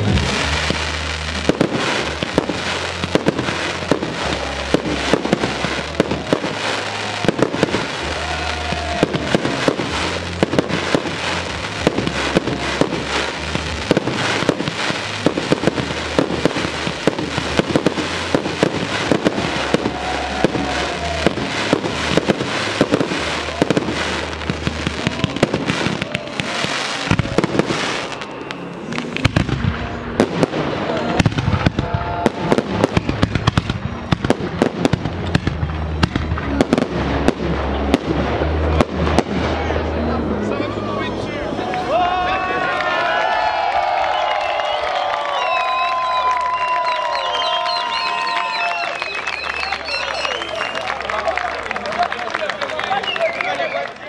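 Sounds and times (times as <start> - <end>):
music with bass line: 0.0 - 25.1
fireworks pops and bangs: 0.0 - 39.5.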